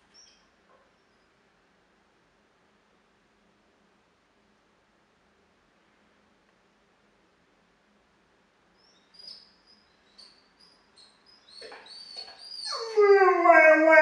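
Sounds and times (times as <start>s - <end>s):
dog whimpering: 11.5s - 14.0s
dog howling: 11.6s - 14.0s.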